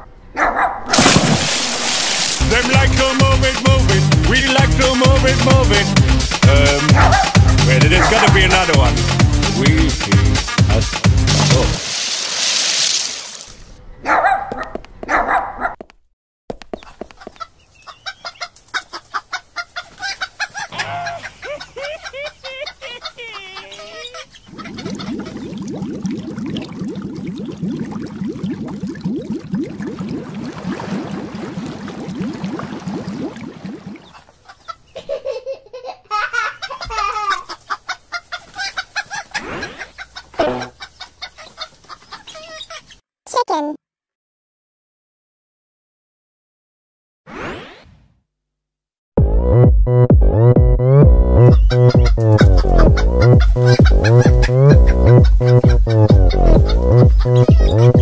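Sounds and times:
dog barks: 0.3s - 0.9s, 6.9s - 8.3s, 14.0s - 15.8s
bubbling gushing water: 0.9s - 3.2s, 11.2s - 13.7s, 24.5s - 34.3s
chickens clucking: 17.0s - 25.6s, 34.0s - 43.0s, 51.4s - 58.0s
hen squawking: 51.4s - 58.0s.

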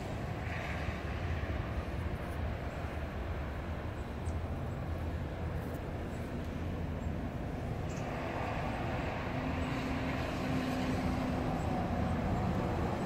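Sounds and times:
street traffic rumble: 0.0s - 13.0s
vehicle passing: 8.0s - 13.0s.

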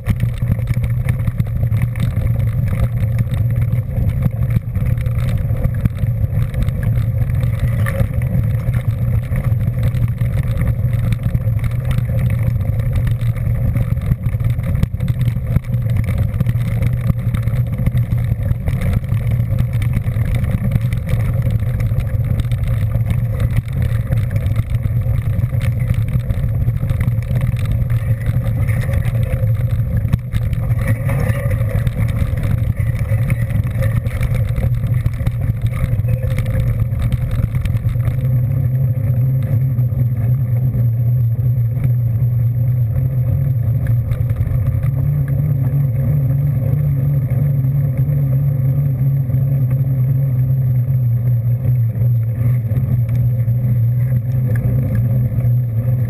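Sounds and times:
vehicle engine running steadily: 0.0s - 56.0s.

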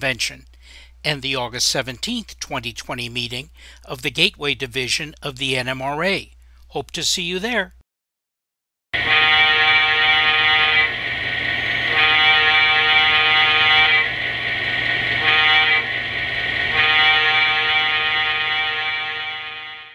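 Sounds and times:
locomotive air horn blasts: 9.0s - 11.1s, 11.8s - 14.2s, 15.2s - 16.0s, 16.7s - 19.9s.

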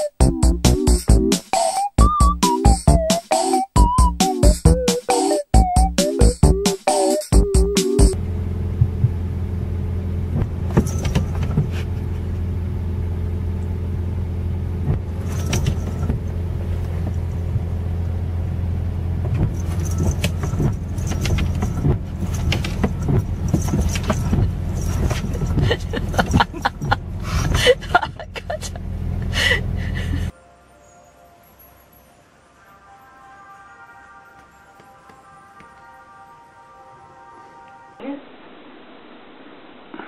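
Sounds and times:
car engine running inside cabin: 8.1s - 30.3s
windshield wipers sweeping wet glass: 8.8s - 9.3s, 10.2s - 12.4s, 14.7s - 17.8s, 19.2s - 28.3s.

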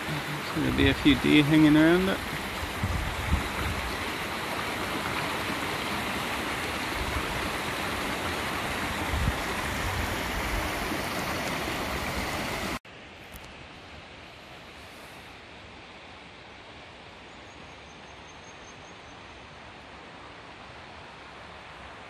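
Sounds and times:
water rushing over rocks: 0.0s - 12.8s.

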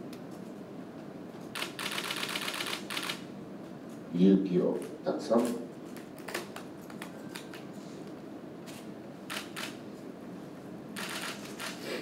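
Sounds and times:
room noise: 0.0s - 12.0s
camera shutters clicking: 1.5s - 3.2s, 8.7s - 9.8s, 11.0s - 11.8s.

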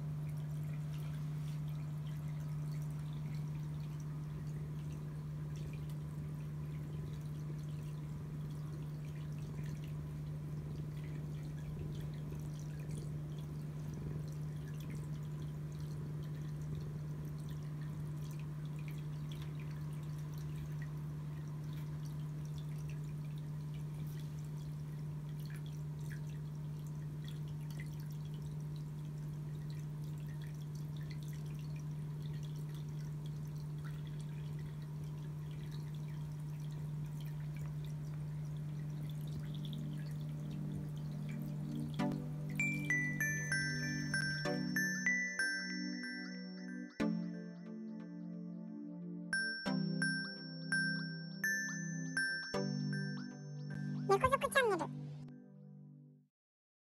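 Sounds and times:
low hum: 0.0s - 55.4s.

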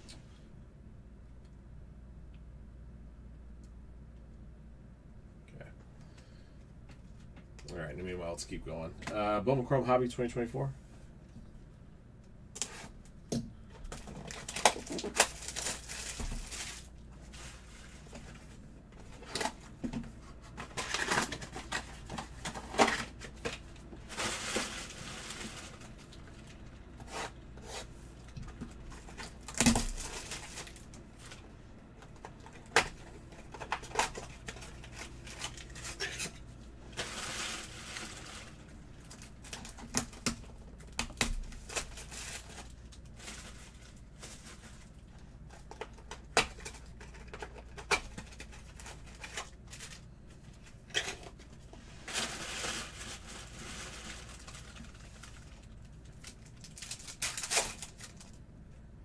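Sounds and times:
pack wrappers tearing and crinkling: 13.8s - 18.4s, 20.4s - 27.2s, 28.8s - 31.4s, 32.1s - 50.2s, 52.0s - 58.4s.

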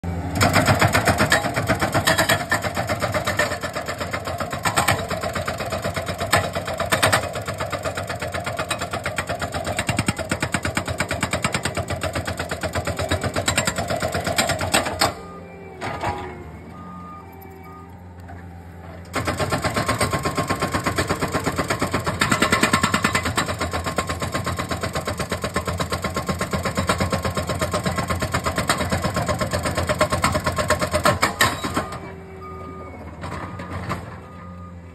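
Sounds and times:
loader engine running: 0.0s - 34.9s
hydraulic breaker hammering rock: 0.4s - 15.2s, 19.1s - 32.0s.

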